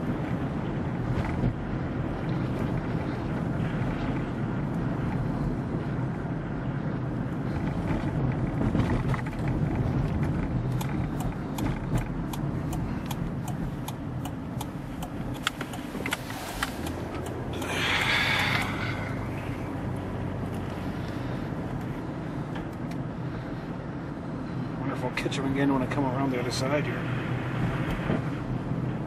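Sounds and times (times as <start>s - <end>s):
car engine and tyre rumble: 0.0s - 29.0s
light irregular ticks: 7.4s - 19.2s.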